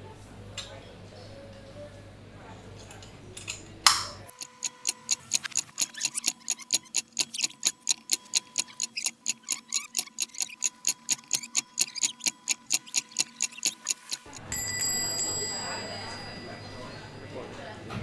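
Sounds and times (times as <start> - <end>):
clock ticking fast: 4.3 - 14.5.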